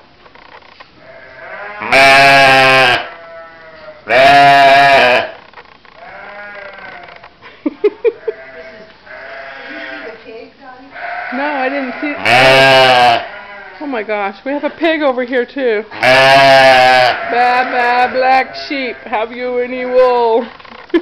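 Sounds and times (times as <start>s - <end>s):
sheep bleating: 1.0s - 5.4s, 6.0s - 7.2s, 8.1s - 10.3s, 10.9s - 14.1s, 15.9s - 20.5s.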